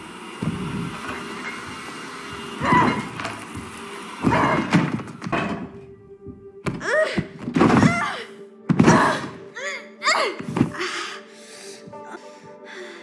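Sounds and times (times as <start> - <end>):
music: 0.0 - 13.0.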